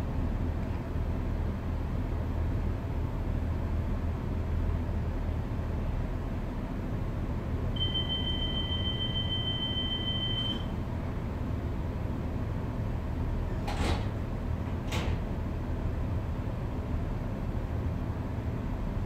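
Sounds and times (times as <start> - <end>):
low diesel hum: 0.0 - 19.0
high beep: 7.8 - 10.7.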